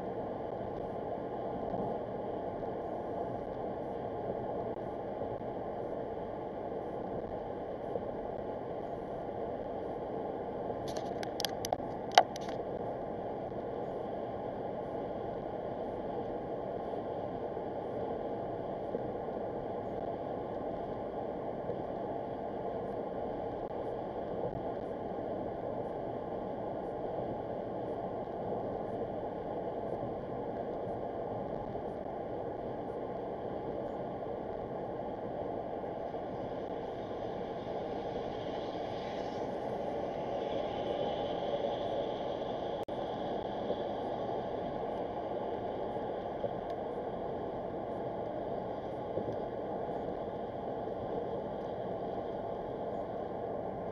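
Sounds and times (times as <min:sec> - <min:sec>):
car road and tyre noise: 0:10.9 - 0:12.6, 0:36.3 - 0:45.6
sharp clicks: 0:10.9 - 0:12.6.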